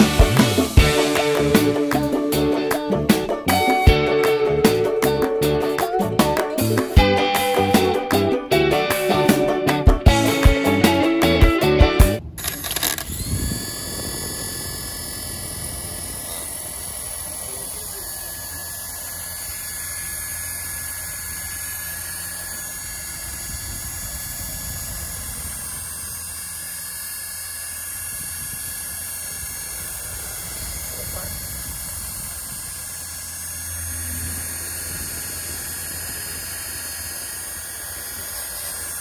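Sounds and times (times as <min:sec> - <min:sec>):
toy helicopter motors whirring: 0:00.0 - 0:39.0.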